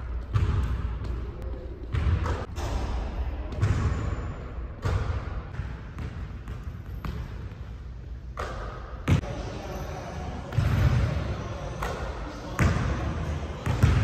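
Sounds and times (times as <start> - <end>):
basketballs bouncing on hardwood floor: 0.2 - 1.2, 13.6 - 14.0.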